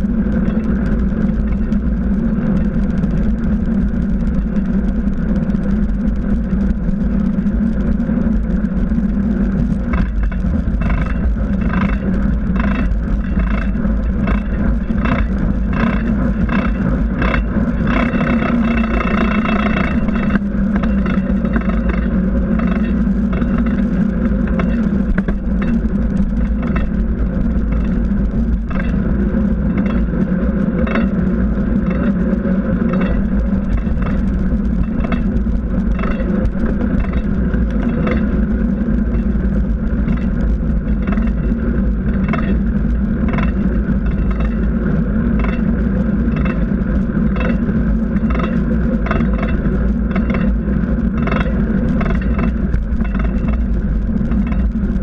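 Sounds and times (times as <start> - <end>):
bicycle tyres rolling on asphalt: 0.0 - 55.0
small rattles and clicks: 0.0 - 55.0
wind on microphone: 0.0 - 55.0.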